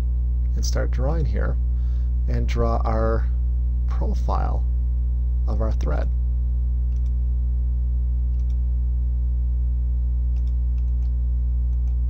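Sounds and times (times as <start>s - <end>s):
electrical mains hum: 0.0s - 12.0s
faint mouse clicks: 6.9s - 7.2s, 8.3s - 8.6s, 10.3s - 12.0s.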